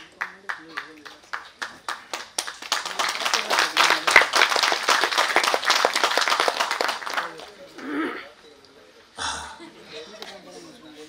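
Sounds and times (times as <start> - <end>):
audience applause: 0.0 - 7.6.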